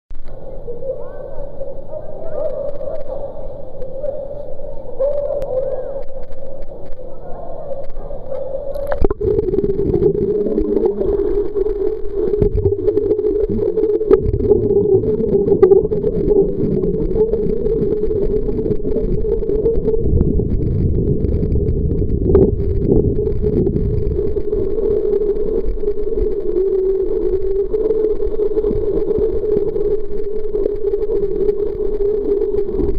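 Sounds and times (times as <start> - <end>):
steady hum: 5.9 - 32.9
swimmer splashing underwater: 8.8 - 32.9.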